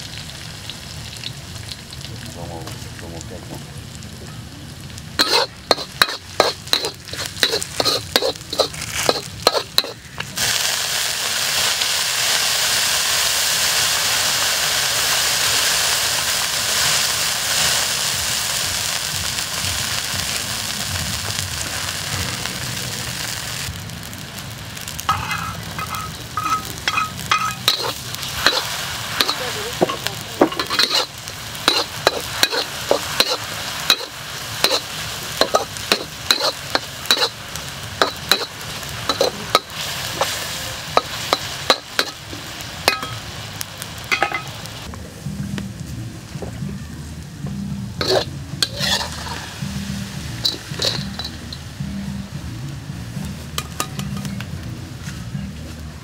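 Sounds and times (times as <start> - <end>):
loud frying sizzle: 0.0 - 56.0
spatula scraping a wok: 5.2 - 10.0, 25.1 - 37.4, 38.0 - 42.2, 48.0 - 51.6.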